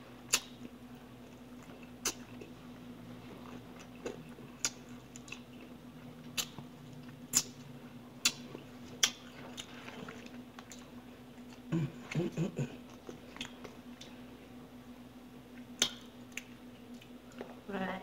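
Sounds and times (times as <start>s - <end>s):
faint steady hum: 0.0s - 18.0s
chewing with crisp crunches: 0.2s - 14.2s.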